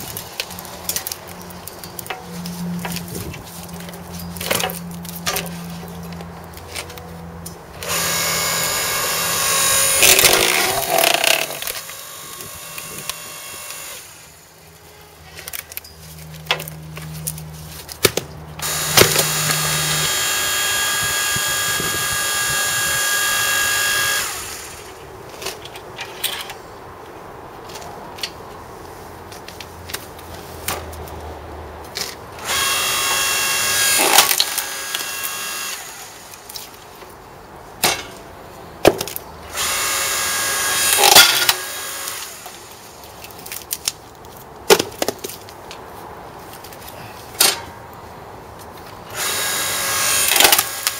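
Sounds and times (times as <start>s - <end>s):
log splitter motor whine: 7.8s - 14.4s, 18.6s - 25.0s, 32.4s - 36.6s
wood cracking and knocks: 38.8s - 39.2s.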